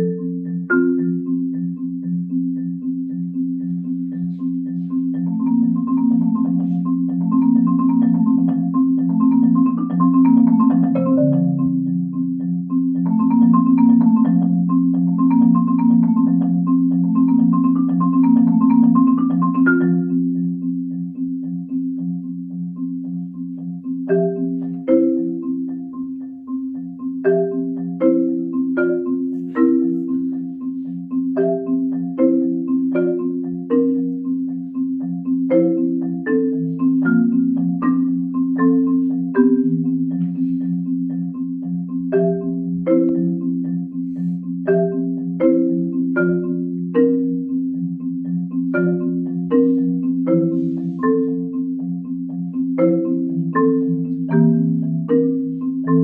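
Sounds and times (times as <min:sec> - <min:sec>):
marimba played with mallets: 0:00.0 - 0:56.0.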